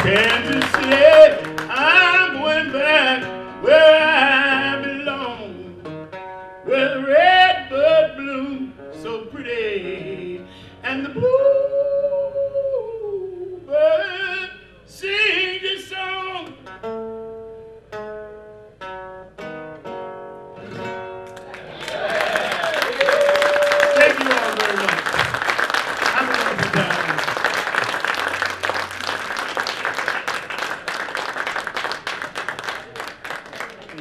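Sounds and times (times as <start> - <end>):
man singing: 0.0 - 5.8, 6.6 - 16.6
acoustic guitar: 0.0 - 22.7.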